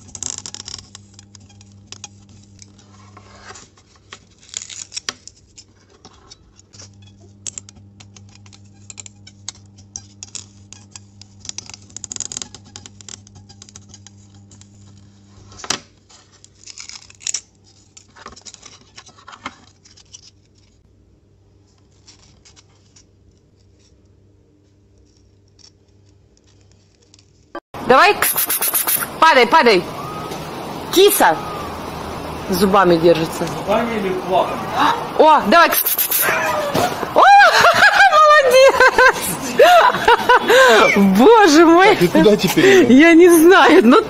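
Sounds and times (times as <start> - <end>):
scratchy rubbing of foam: 0.0 - 7.4, 28.0 - 29.2, 35.6 - 36.5
steady low hum: 6.4 - 16.2.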